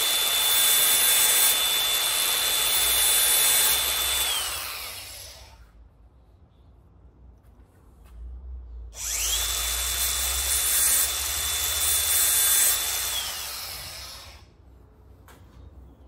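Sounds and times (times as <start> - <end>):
angle grinder whine: 0.0 - 5.6, 9.0 - 14.4.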